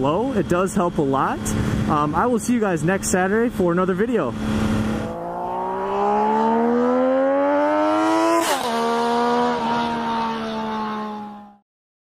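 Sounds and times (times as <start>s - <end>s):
motorcycle engine revving: 4.3s - 11.6s.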